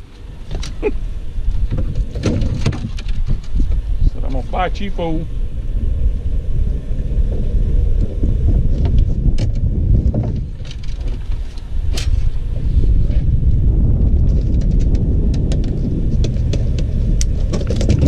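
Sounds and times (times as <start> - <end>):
wind buffeting microphone: 0.0 - 18.0
gear clicking and knocking: 14.2 - 18.0.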